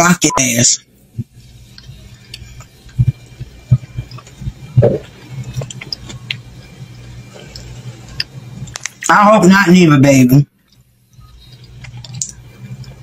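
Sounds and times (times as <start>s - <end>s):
low steady hum: 0.0s - 13.0s
soft thumps and clicks: 2.6s - 6.4s.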